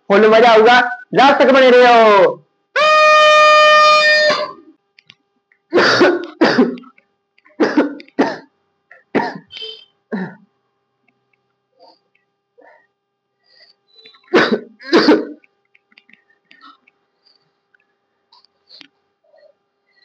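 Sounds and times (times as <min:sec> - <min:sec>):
person coughing and clearing throat: 0:05.7 - 0:10.5, 0:14.2 - 0:15.4.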